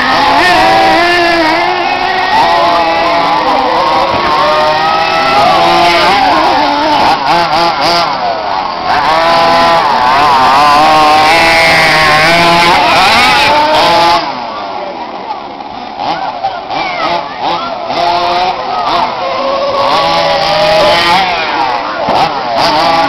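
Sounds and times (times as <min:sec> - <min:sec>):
rc truck engines revving: 0:00.0 - 0:23.0.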